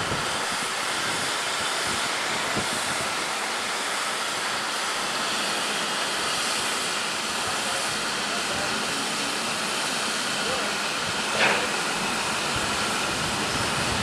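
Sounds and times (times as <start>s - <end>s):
steam hissing: 0.0s - 14.0s.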